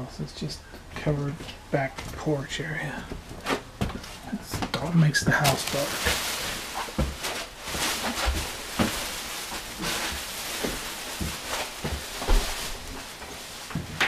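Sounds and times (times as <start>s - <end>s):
footsteps thumping: 3.0s - 14.0s.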